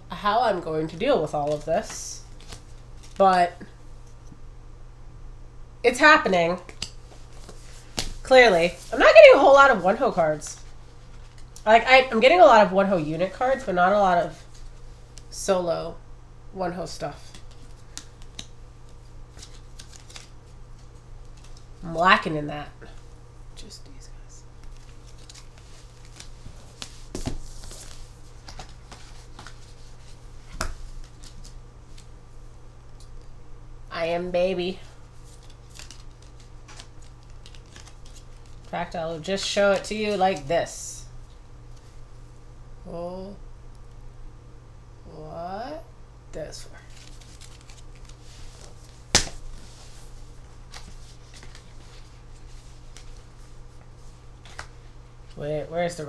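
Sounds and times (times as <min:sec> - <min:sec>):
cards rustling: 0:01.3 - 0:03.3, 0:17.2 - 0:21.7, 0:24.6 - 0:32.1, 0:35.1 - 0:40.5, 0:46.8 - 0:53.8
cards clicking and rustling: 0:17.2 - 0:21.6, 0:35.3 - 0:38.7, 0:46.9 - 0:49.4.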